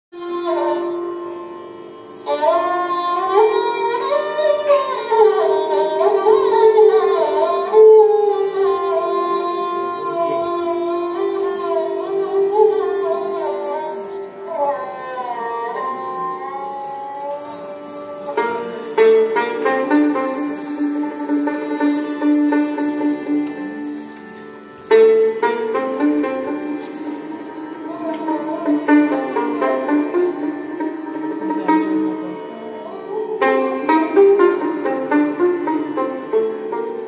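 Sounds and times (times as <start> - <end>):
melodic instrument playing: 16.6 - 32.6
ankle bells jingling: 16.7 - 27.9.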